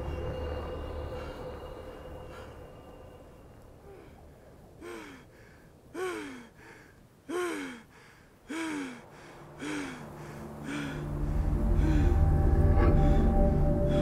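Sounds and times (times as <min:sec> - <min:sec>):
low music drone: 0:00.0 - 0:04.4, 0:08.5 - 0:14.0.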